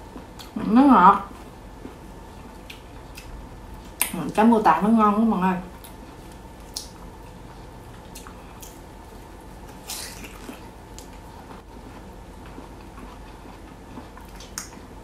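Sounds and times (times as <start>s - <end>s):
low room hum: 0.0s - 15.0s
biting and chewing: 9.6s - 15.0s.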